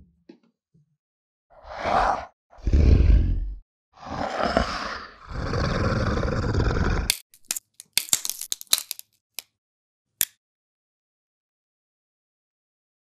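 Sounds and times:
rough growling snarl: 1.6s - 7.2s
sharp clicks and cracks: 7.1s - 9.6s.

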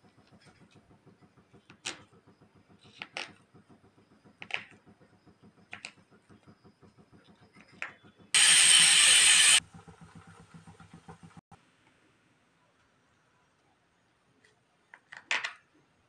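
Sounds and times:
loud hiss: 8.4s - 9.6s.

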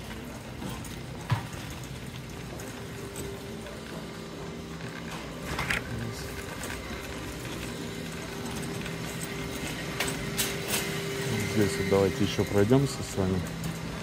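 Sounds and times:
shopping cart rattling: 0.0s - 14.0s
steady mechanical hum: 0.0s - 14.0s.

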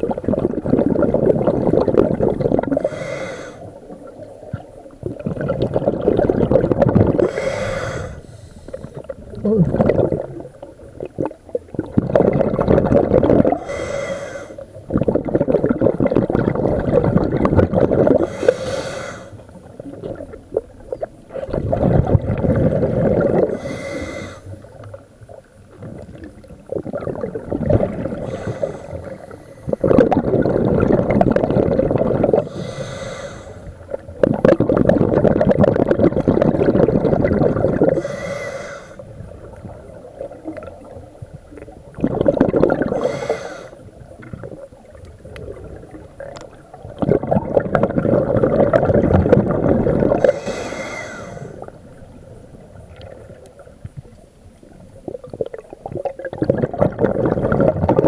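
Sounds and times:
exhaled bubbles underwater: 0.0s - 58.0s
regulator inhalation hiss: 2.7s - 3.8s, 7.2s - 9.1s, 13.5s - 14.8s, 18.2s - 19.5s, 23.5s - 24.7s, 28.1s - 30.0s, 32.4s - 33.8s, 37.9s - 39.1s, 42.9s - 43.9s, 50.2s - 51.8s.

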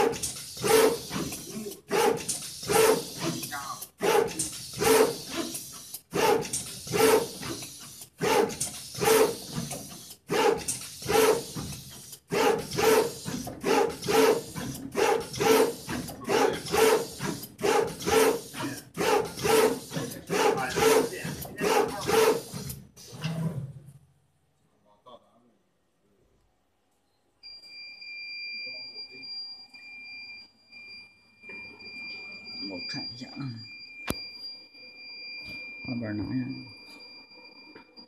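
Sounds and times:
machine head rhythmic whir and hiss: 0.0s - 23.3s.

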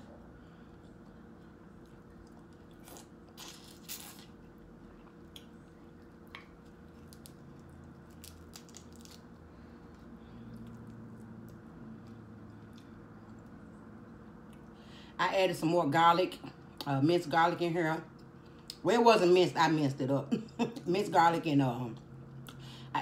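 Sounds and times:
chewing and biting shrimp: 0.8s - 13.2s.

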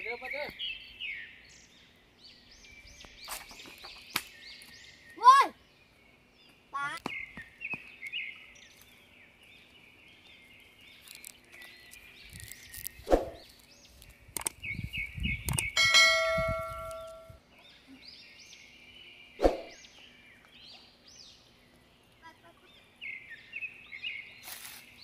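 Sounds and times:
small birds chirping: 0.0s - 25.0s
bell-like clang: 15.8s - 17.4s.

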